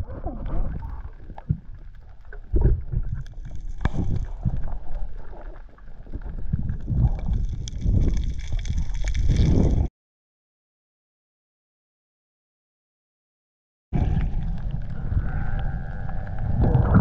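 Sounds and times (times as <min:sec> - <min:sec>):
underwater rumble of moving water: 0:00.0 - 0:09.9, 0:14.0 - 0:17.0.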